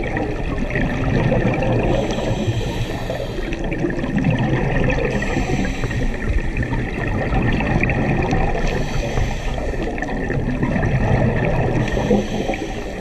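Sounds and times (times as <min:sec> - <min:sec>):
gurgling water: 0:00.0 - 0:13.0
muffled underwater noise: 0:00.0 - 0:13.0.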